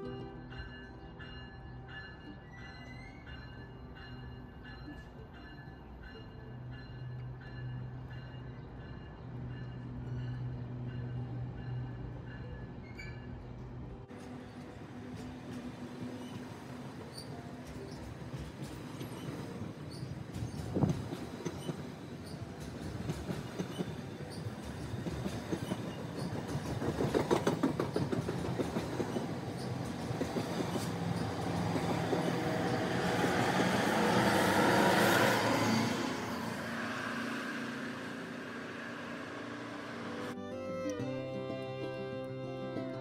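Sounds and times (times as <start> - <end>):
train rushing past: 0.0 - 42.8
wheels clicking over rail joints: 12.8 - 32.8.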